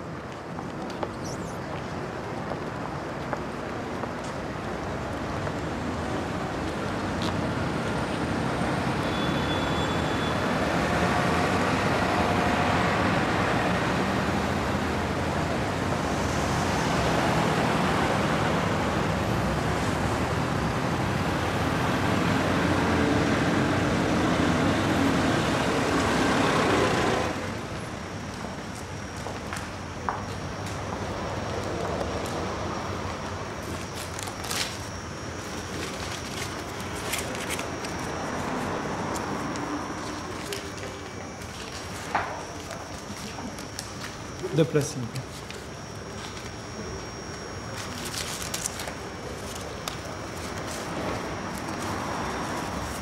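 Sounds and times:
passing cars: 5.2 - 28.0.

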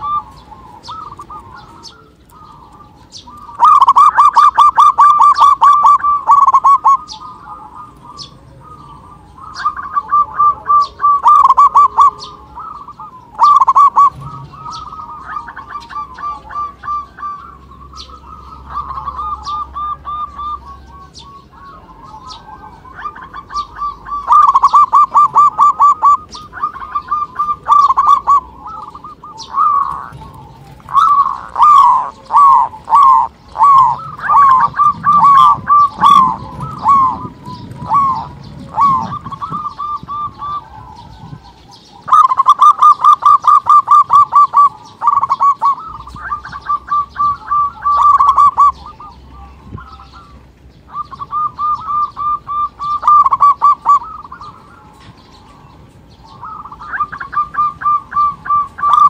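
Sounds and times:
doves cooing: 0.0 - 59.0.

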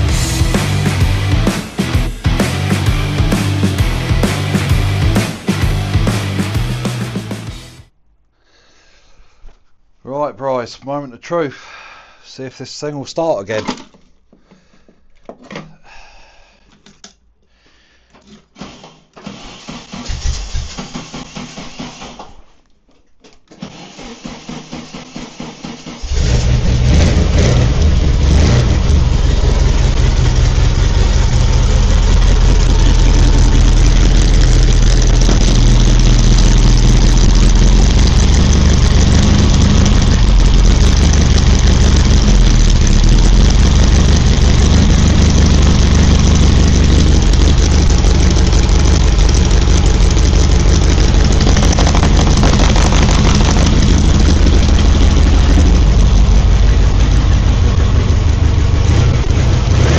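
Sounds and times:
engine running loudly: 0.0 - 7.8, 26.0 - 59.9
starter motor cranking: 18.6 - 22.3, 31.0 - 57.4.

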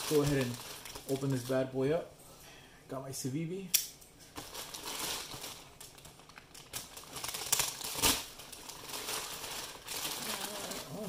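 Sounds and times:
plastic bag crinkling: 0.0 - 1.8, 4.4 - 11.0
sharp snaps: 3.7 - 4.0.

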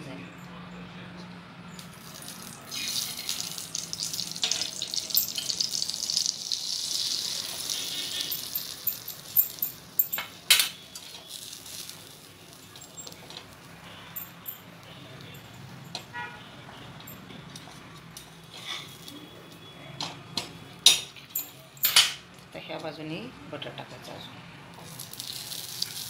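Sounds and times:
oil sizzling on hot pan: 1.8 - 13.8, 24.7 - 26.0.

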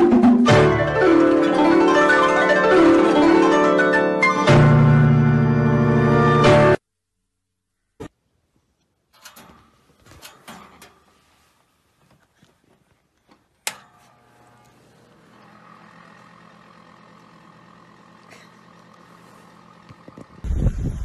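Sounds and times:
heater humming: 13.2 - 21.0
heater switch click: 13.6 - 14.8.

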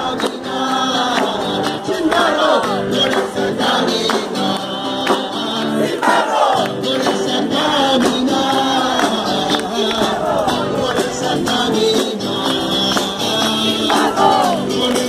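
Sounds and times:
hand clapping: 0.0 - 5.4, 6.0 - 15.0
crowd singing in unison: 0.0 - 15.0.

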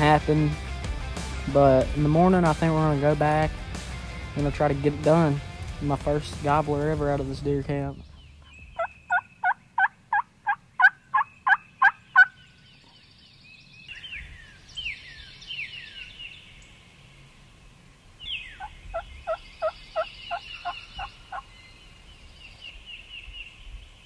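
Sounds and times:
wild turkey yelping: 8.1 - 13.0, 18.2 - 21.5.

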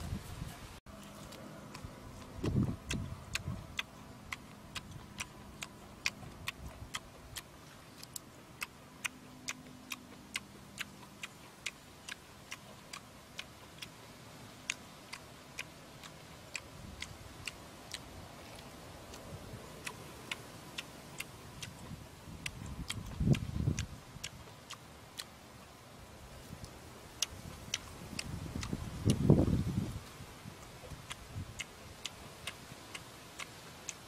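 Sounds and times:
sharp regular ticking clicks: 1.7 - 14.0, 14.6 - 25.3, 27.2 - 29.2
dull low thumps: 2.2 - 3.8.

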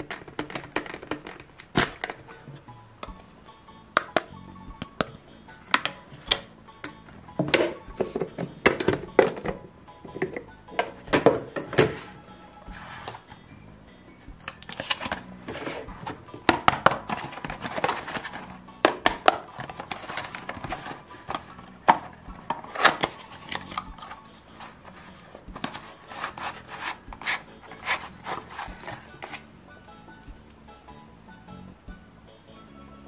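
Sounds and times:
plastic toys tapping on table: 0.0 - 2.2
card sheet rustling and folding: 11.8 - 13.3, 14.5 - 18.6, 19.4 - 29.4.

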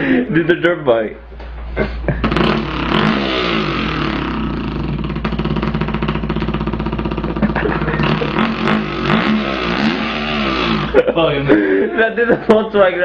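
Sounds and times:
man imitating engine with mouth: 1.8 - 11.0.

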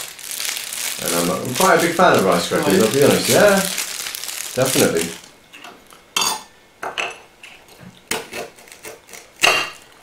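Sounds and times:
rice crackers clattering: 0.0 - 5.3.

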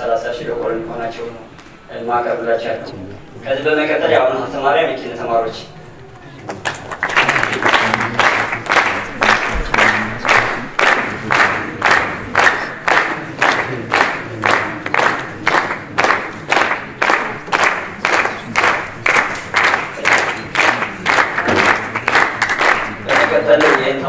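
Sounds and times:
crowd clapping in unison: 6.4 - 24.0.

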